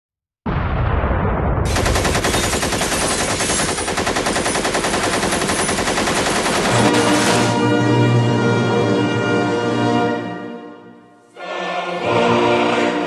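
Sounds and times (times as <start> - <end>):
machine-gun fire: 1.6 - 7.7
choral and orchestral music: 6.7 - 13.0.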